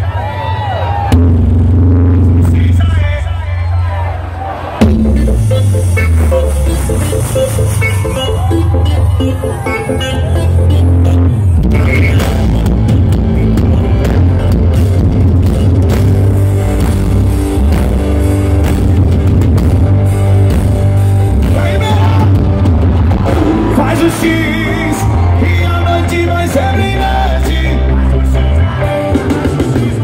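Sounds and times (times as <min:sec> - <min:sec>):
loud live concert music: 0:00.0 - 0:30.0
wavering melody line: 0:05.0 - 0:14.6.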